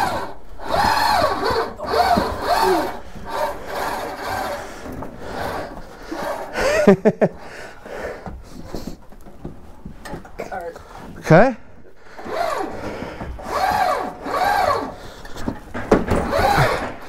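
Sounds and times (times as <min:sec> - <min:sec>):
hand truck creaking on stairs: 0:00.0 - 0:17.0.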